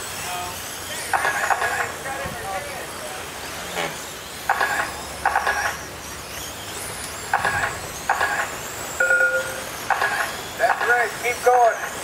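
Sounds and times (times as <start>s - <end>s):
rc car motors whining: 0.0s - 12.0s
short pitched beeps: 9.0s - 9.8s.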